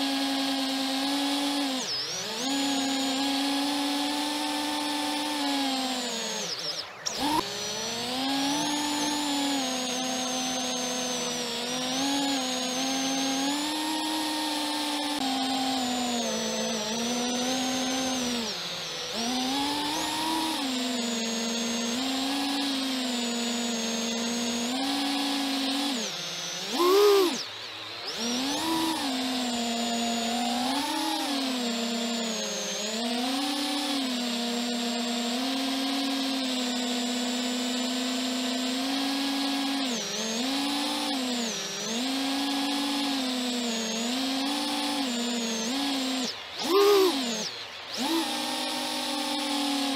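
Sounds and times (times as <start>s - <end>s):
quadcopter motors whining: 0.0s - 49.9s.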